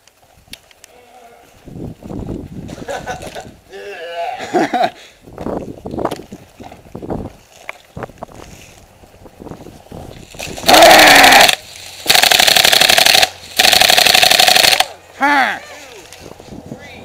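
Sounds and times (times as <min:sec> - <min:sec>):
airsoft machine gun firing bursts: 0:10.7 - 0:15.0.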